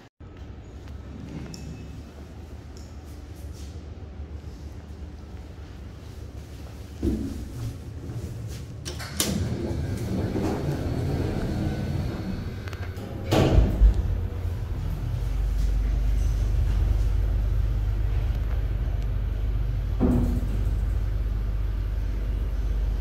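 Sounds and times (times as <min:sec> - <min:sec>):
lift doors sliding and clunking shut: 0:07.0 - 0:17.2
lift machinery humming: 0:07.8 - 0:23.0.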